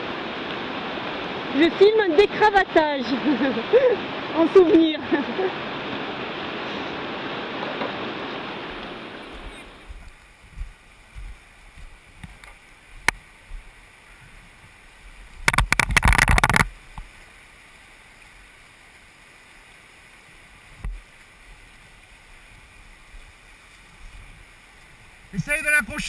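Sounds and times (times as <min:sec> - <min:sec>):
river rushing: 0:00.0 - 0:26.0
microphone buffeting crackle: 0:08.6 - 0:14.5, 0:15.2 - 0:17.1.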